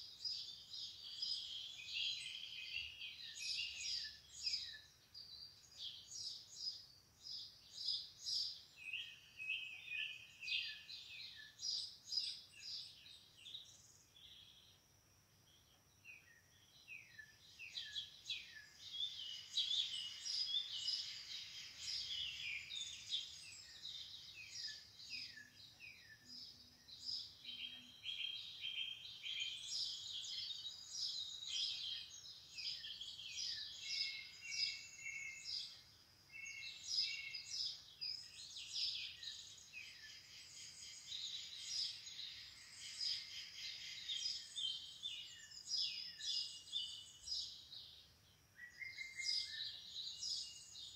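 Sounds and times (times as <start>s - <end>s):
songbirds chirping and trilling: 0.0s - 50.9s.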